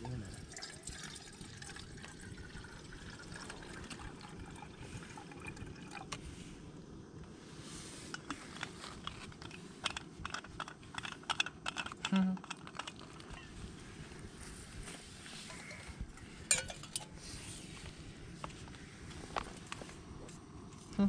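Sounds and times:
water pouring into metal mug: 0.1s - 6.2s.

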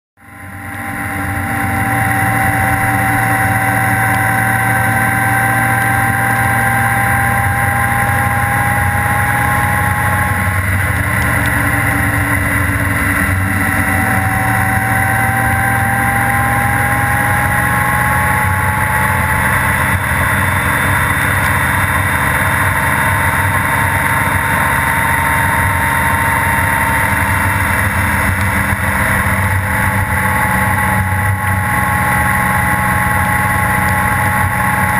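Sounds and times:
motorcycle engine running: 0.2s - 34.9s
thin rising whine: 0.2s - 34.9s
wind and tyre noise: 0.2s - 34.9s.

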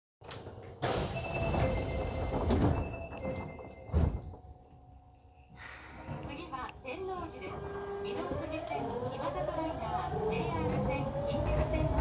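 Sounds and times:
train doors shutting with a thud: 0.2s - 4.6s.

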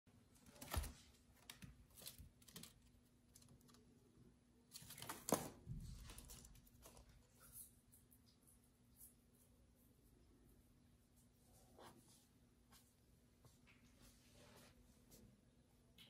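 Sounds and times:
faint clicks and rustles: 0.1s - 9.7s.

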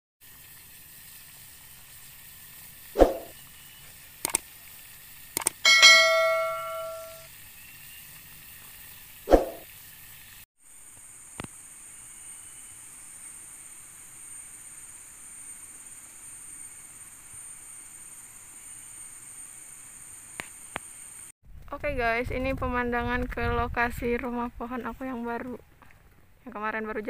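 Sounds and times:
steady hiss: 0.2s - 21.3s
sharp clicks: 4.2s - 4.4s, 5.4s - 5.6s
struck metal ringing: 5.7s - 7.2s.

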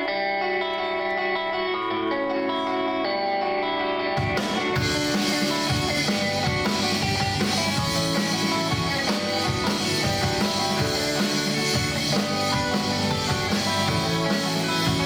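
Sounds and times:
electric guitars: 0.0s - 15.0s
electric bass: 3.6s - 15.0s
drum kit steady beat: 4.2s - 15.0s.

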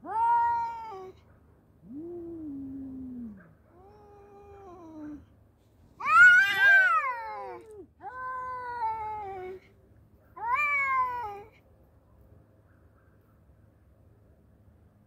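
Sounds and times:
cats yowling: 0.0s - 1.2s, 6.0s - 9.6s, 10.4s - 11.5s.

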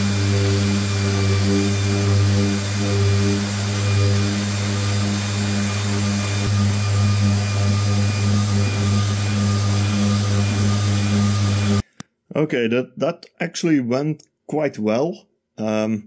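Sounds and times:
orbital sander on wood: 0.0s - 11.9s.

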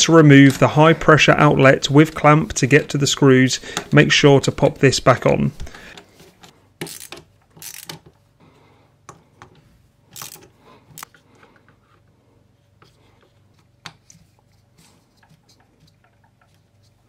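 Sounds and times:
ratchet wrench clicking: 6.8s - 8.0s.

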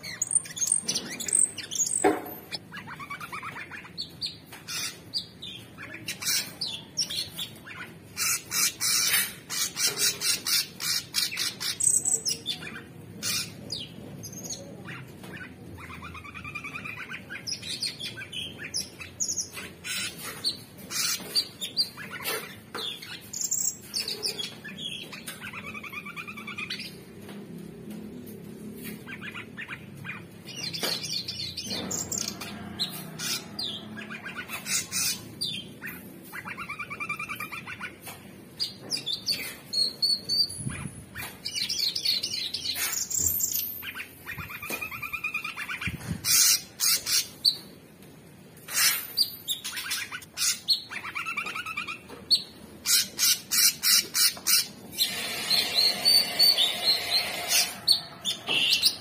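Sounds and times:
bird singing chirps and trills: 0.0s - 27.0s, 48.7s - 59.0s.

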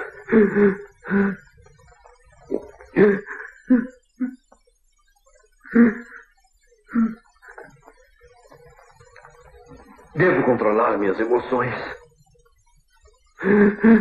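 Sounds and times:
man sobbing and gasping: 2.9s - 4.4s, 13.4s - 14.0s.

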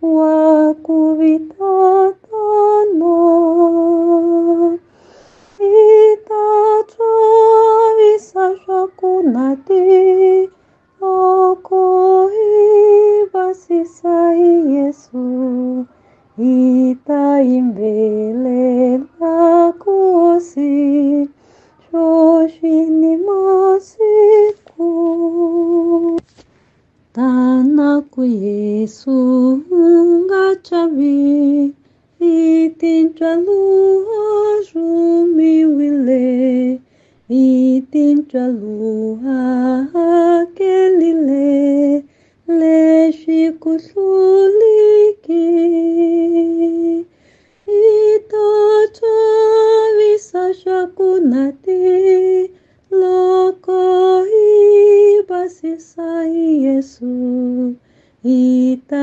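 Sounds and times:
woman singing a hymn solo: 0.0s - 4.9s, 5.6s - 26.2s, 27.1s - 47.1s, 47.7s - 59.0s
singer breathing: 4.8s - 5.6s, 21.4s - 21.9s, 36.8s - 37.3s, 42.1s - 42.4s, 47.1s - 47.7s, 57.8s - 58.2s.

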